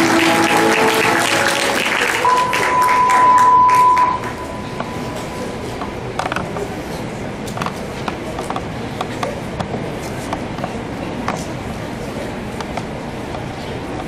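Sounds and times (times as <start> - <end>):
hall background noise: 0.0 - 14.0
test-tone beep over speakers: 2.2 - 5.5.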